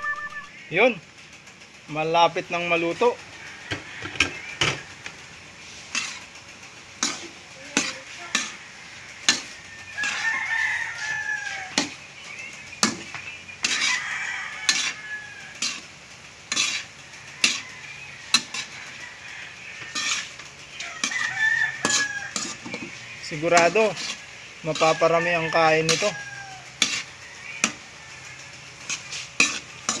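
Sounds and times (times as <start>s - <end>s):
rooster crowing: 0.0s - 0.7s, 3.2s - 5.3s, 7.9s - 12.0s, 13.5s - 15.9s, 16.6s - 30.0s
metal spatula scraping a wok: 2.5s - 30.0s.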